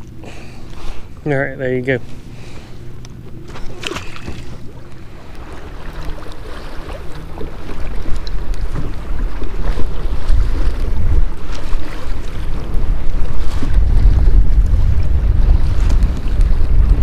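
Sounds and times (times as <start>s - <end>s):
waves slapping kayak: 0.0s - 17.0s
wind buffeting microphone: 3.4s - 17.0s.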